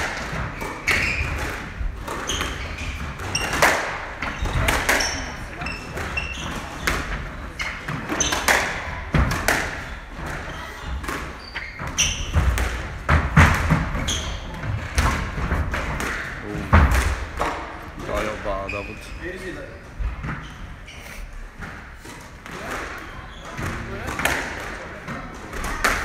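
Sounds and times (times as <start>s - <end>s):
shoes squeaking on wooden floor: 0.4s - 9.0s, 9.8s - 15.6s, 18.0s - 22.2s, 23.0s - 24.1s
squash ball knocking: 7.8s - 18.3s.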